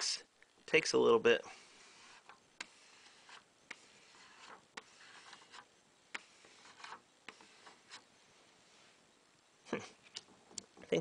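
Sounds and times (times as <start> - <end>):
plastic card scraping tape on glass: 1.6 - 8.1.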